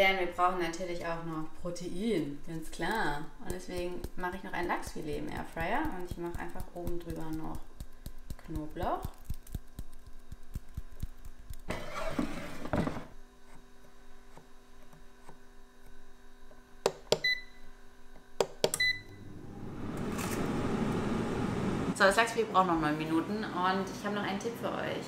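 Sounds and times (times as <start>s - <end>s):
air fryer fan rushing: 18.8s - 22.0s.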